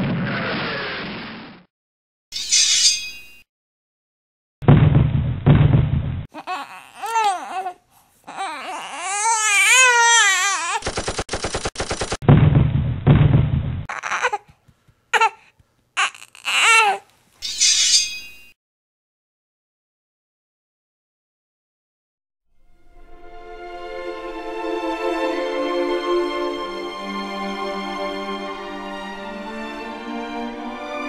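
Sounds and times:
shrill vocal cries: 0:06.3 - 0:10.8, 0:13.9 - 0:14.6, 0:15.2 - 0:17.1
machine-gun fire: 0:10.8 - 0:12.7.

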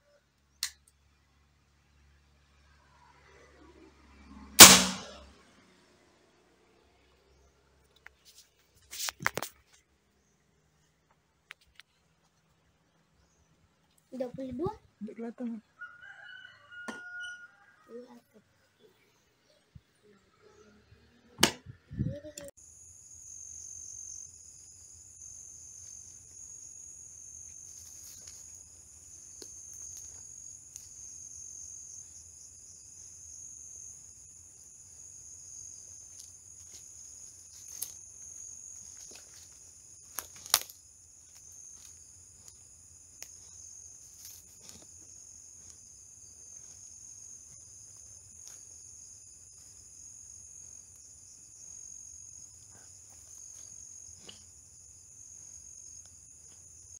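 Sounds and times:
night insects chirping: 0:22.2 - 0:56.9.

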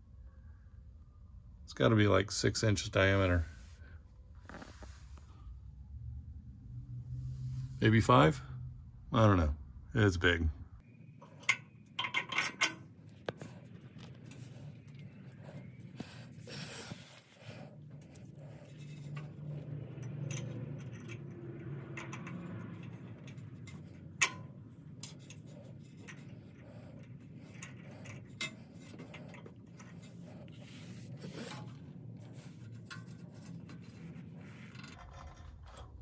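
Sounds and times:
hands scraping metal hardware: 0:11.2 - 0:36.0
metal bolts clinking: 0:11.2 - 0:36.0.

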